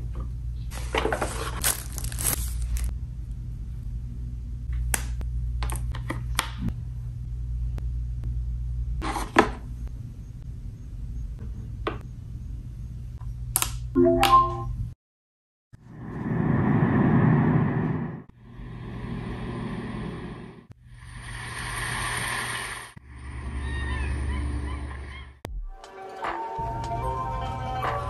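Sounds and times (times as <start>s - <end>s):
scraping and rustling packaging: 0.7s - 2.9s
steady low hum: 1.6s - 9.0s, 9.6s - 13.9s, 15.8s - 21.6s.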